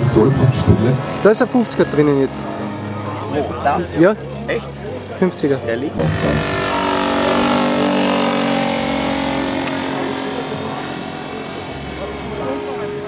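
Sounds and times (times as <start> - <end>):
model plane engine passing: 6.0 - 13.0.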